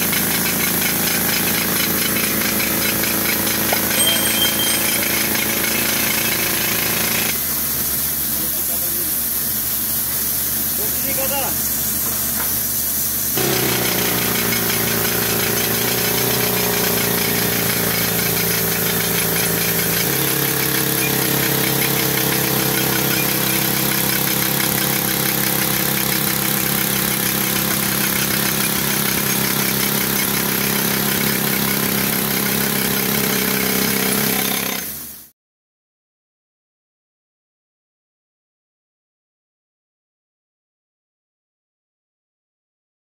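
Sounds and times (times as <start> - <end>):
pneumatic rock drill hammering: 0.0 - 9.0, 10.0 - 35.3.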